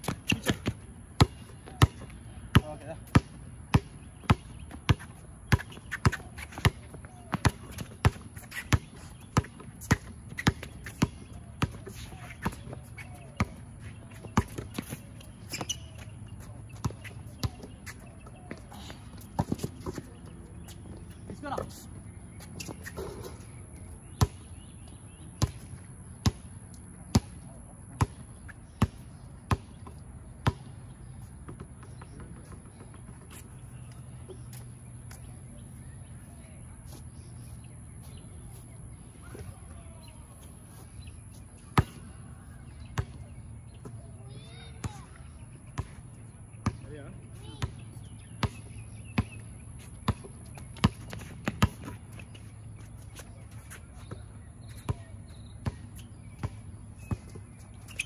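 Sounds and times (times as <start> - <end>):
basketball bouncing on hard court: 0.0 - 16.1, 16.7 - 20.7, 28.8 - 30.7, 41.8 - 42.1, 43.0 - 43.2, 46.6 - 46.8, 47.6 - 47.8, 48.4 - 49.4, 50.0 - 52.0, 54.8 - 57.4
bird chirps: 33.3 - 45.8.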